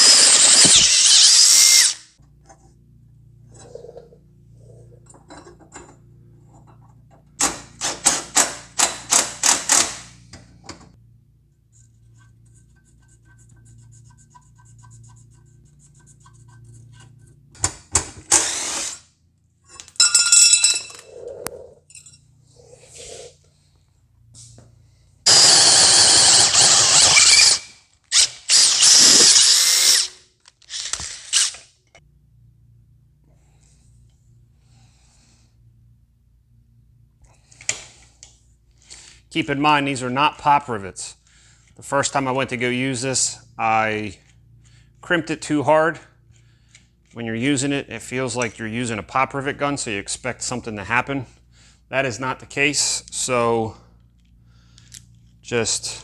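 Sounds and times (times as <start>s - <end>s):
cordless drill running: 0.0s - 2.0s, 18.3s - 19.0s, 25.3s - 30.1s, 30.7s - 31.6s.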